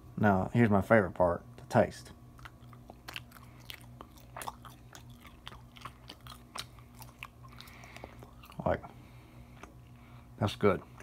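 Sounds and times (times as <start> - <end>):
person chewing: 2.3 - 10.0.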